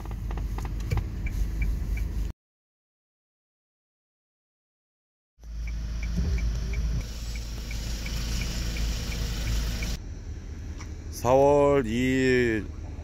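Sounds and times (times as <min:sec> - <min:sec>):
turn signal relay ticking: 0:00.0 - 0:02.2, 0:05.4 - 0:10.0
car engine idling: 0:05.4 - 0:11.3.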